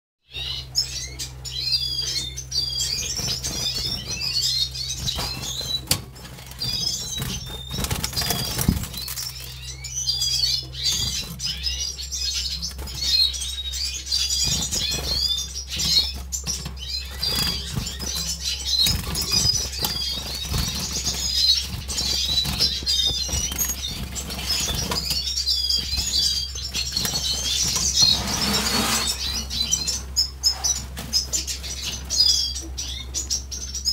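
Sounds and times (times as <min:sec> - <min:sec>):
finches twittering: 0:00.3 - 0:33.9
birds hopping against cage: 0:02.5 - 0:09.8, 0:14.4 - 0:32.2
wings fluttering: 0:02.8 - 0:09.7, 0:10.8 - 0:11.7, 0:14.2 - 0:32.2.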